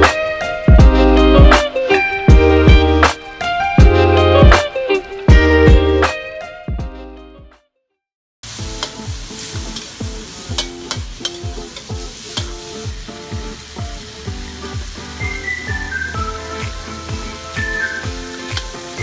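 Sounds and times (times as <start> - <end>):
background music with steady beat: 0.0 - 7.6, 8.5 - 19.0
food sizzling in a wok: 8.4 - 19.0
metal spatula tossing food: 8.8 - 12.9.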